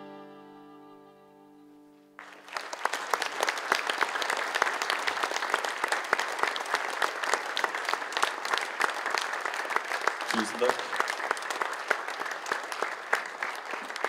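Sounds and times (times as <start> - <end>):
acoustic guitar and cello chord: 0.0 - 1.8
audience applause: 2.2 - 14.0.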